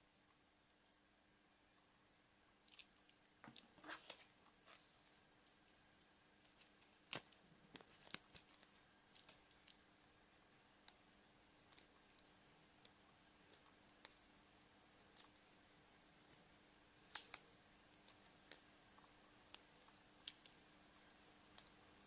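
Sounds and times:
plastic capsule clicks and crinkles: 0:06.5 - 0:09.8
sharp plastic snaps: 0:17.1 - 0:18.6.

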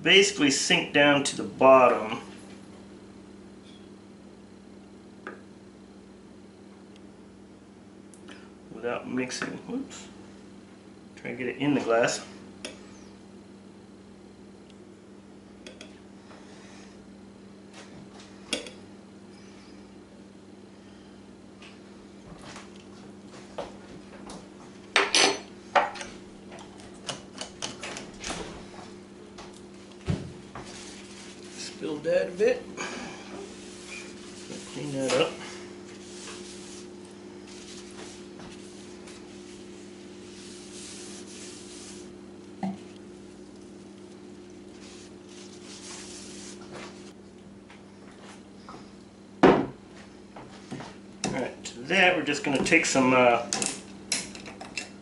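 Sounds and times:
steady low hum: 0:00.0 - 0:55.0
paper napkin rubbing on wood: 0:30.6 - 0:31.9, 0:33.4 - 0:42.2, 0:44.7 - 0:47.1
glass bottle set down on table: 0:49.4 - 0:49.8.

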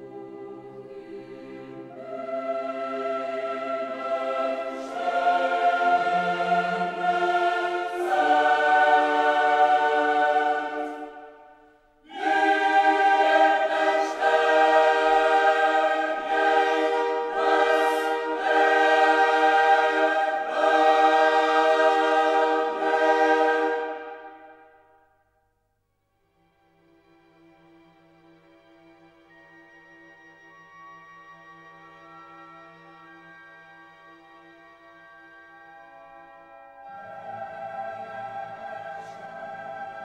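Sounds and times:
choir singing held chords: 0:00.0 - 0:25.1, 0:36.4 - 0:40.0.

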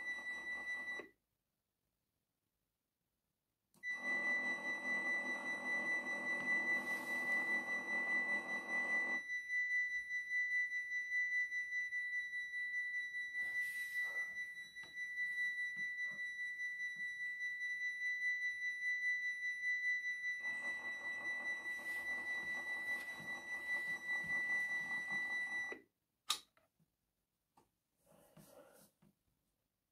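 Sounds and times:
click: 0:26.2 - 0:26.7.

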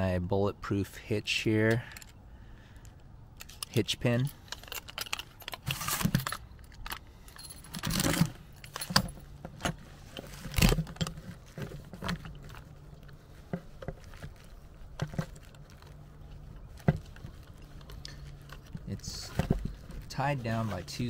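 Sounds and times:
keys clicking and jingling: 0:03.4 - 0:09.3.

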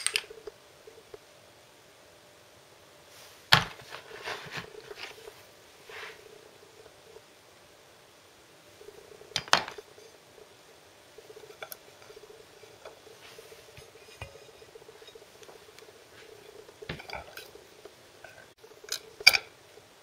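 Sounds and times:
faint steady hum: 0:00.0 - 0:20.0
biscuits tapping and scraping: 0:03.5 - 0:06.2, 0:11.2 - 0:19.6.

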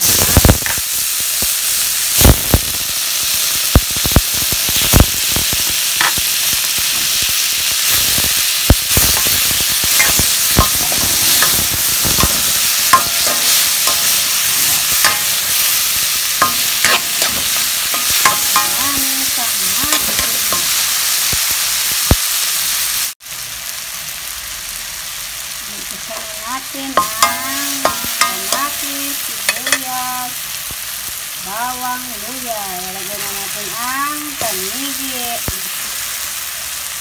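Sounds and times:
vegetables sizzling in hot oil: 0:00.0 - 0:37.0
spatula scraping a wok: 0:08.9 - 0:21.0.

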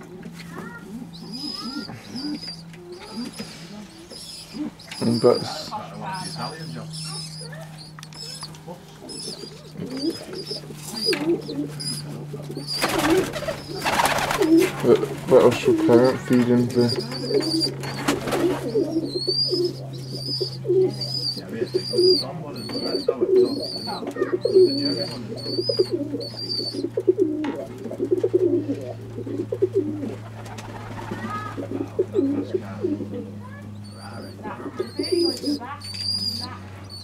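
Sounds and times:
pigeons cooing: 0:00.0 - 0:37.0
steady low hum: 0:00.0 - 0:37.0
wings flapping: 0:01.3 - 0:19.8, 0:25.8 - 0:32.0.

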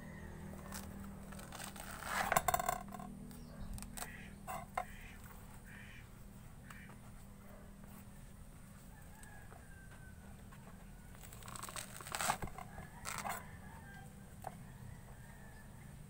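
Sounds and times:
hands tearing fruit pith: 0:11.1 - 0:13.2.

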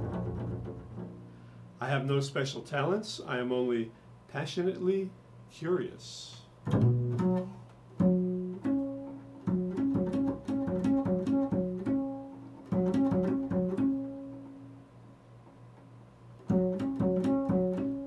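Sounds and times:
double bass plucked notes: 0:00.0 - 0:01.5, 0:06.6 - 0:15.1, 0:16.4 - 0:18.0.

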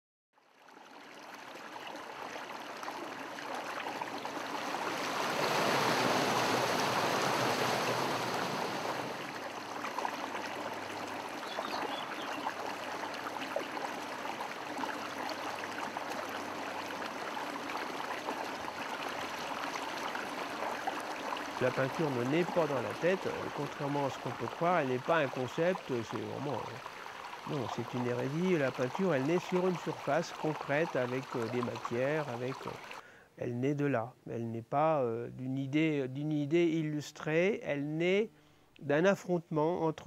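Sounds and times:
mountain torrent rushing: 0:04.6 - 0:09.4, 0:21.6 - 0:26.3.

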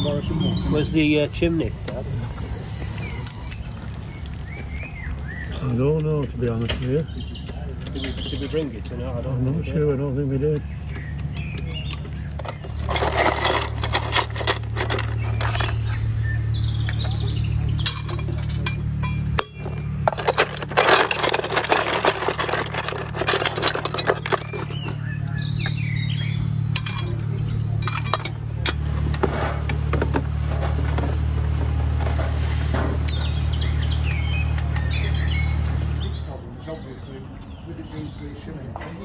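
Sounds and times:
steady low hum: 0:00.0 - 0:38.3
metal tongs clinking on coal: 0:17.8 - 0:25.3, 0:26.7 - 0:28.8.

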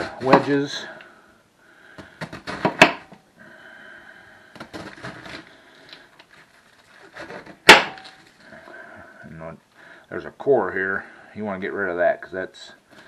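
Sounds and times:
sharp knock: 0:07.6 - 0:08.0.

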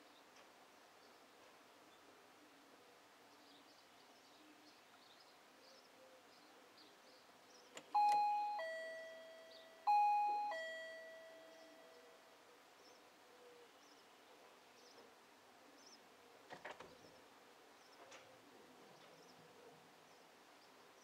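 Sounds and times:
doorbell ding-dong chime: 0:08.0 - 0:12.2.

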